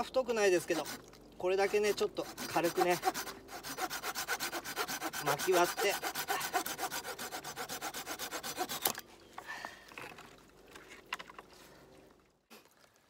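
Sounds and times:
hand saw cutting branch: 0:00.0 - 0:09.1.

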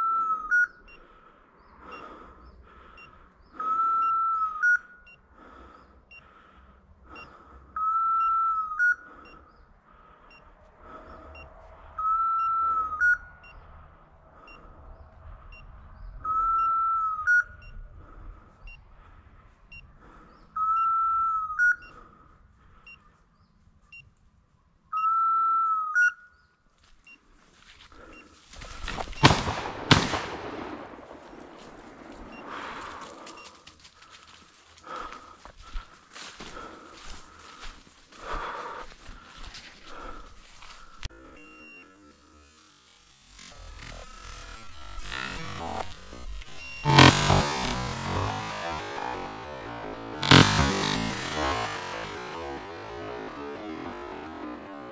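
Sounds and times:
shotgun shots with echo: 0:29.2 - 0:32.9, 0:46.8 - 0:52.5.

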